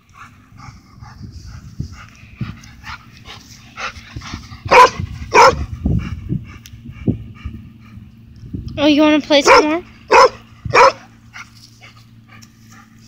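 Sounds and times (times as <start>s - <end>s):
dog barking: 4.7s - 5.7s, 9.4s - 11.1s.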